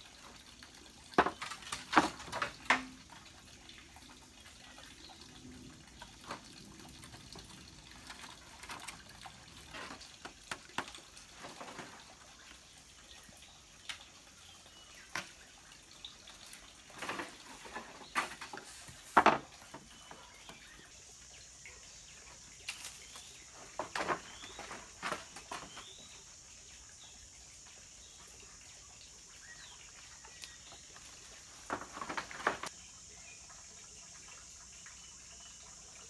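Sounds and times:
bamboo poles knocking: 1.2s - 3.1s, 17.0s - 20.2s, 23.6s - 25.8s, 31.6s - 32.7s.

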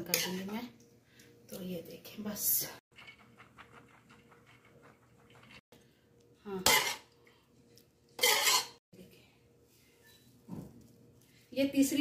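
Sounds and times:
metal utensil scraping pot: 6.6s - 7.1s, 8.2s - 8.8s.

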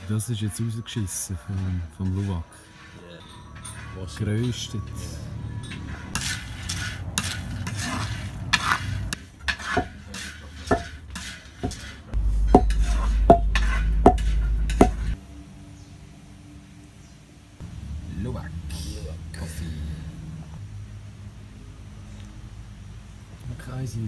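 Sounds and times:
spatula scraping roasting pan: 1.5s - 5.1s, 5.7s - 15.2s
low rumble: 12.2s - 23.3s.

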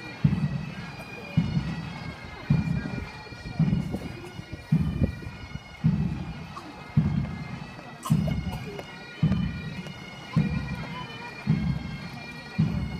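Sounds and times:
bagpipes: 0.0s - 12.9s.

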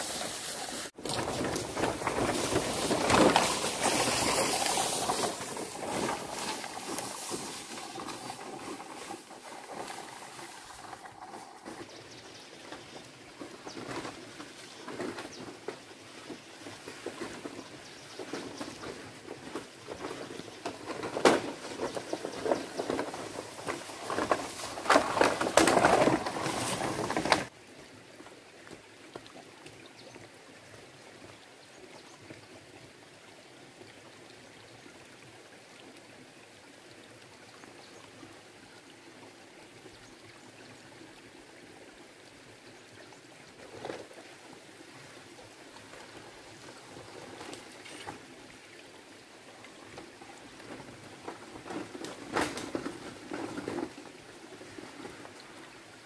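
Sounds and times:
footsteps through vegetation: 0.0s - 11.9s, 13.4s - 27.5s
poles dragged through undergrowth: 0.0s - 27.5s, 49.7s - 56.0s
stream trickling over rocks: 0.0s - 56.0s.

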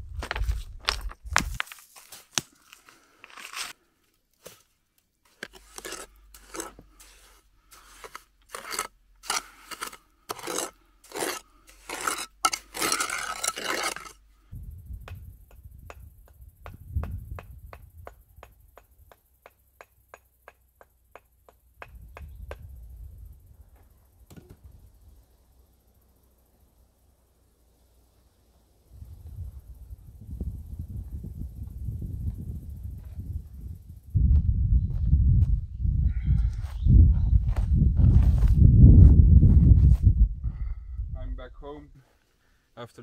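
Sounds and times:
trowel scraping wet mortar: 3.2s - 3.8s, 5.2s - 14.2s.

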